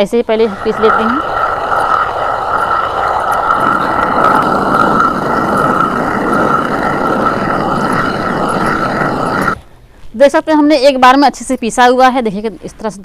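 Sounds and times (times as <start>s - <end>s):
stone quern grinding grain: 0.4s - 9.7s.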